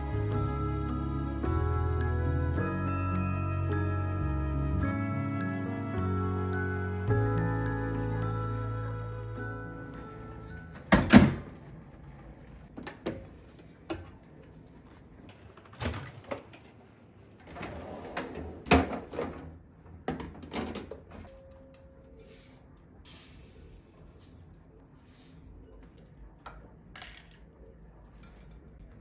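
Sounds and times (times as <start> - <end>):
drawer sliding open: 17.4 - 19.6.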